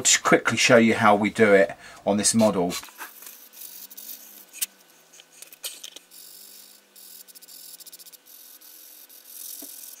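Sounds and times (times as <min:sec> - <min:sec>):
sanding stick scraping plastic: 0:06.1 - 0:10.0.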